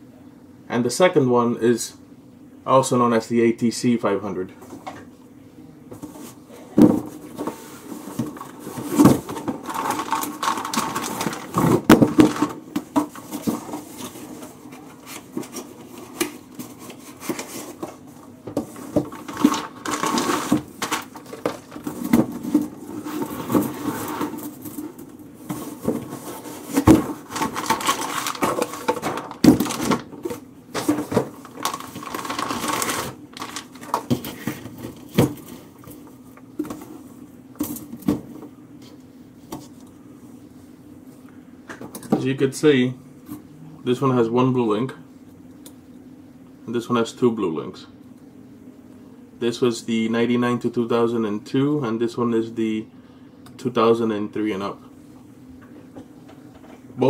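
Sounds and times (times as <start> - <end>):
cardboard boxes being opened: 18.7 - 24.8, 25.4 - 35.5.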